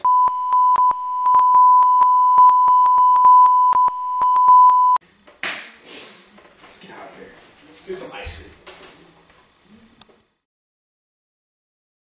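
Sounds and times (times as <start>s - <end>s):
censor bleep: 0.0s - 5.0s.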